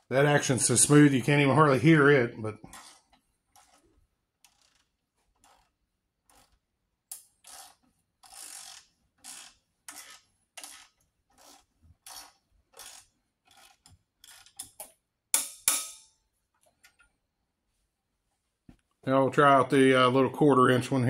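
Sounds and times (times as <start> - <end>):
ratchet clicking: 4.4 - 5.7, 6.3 - 14.8.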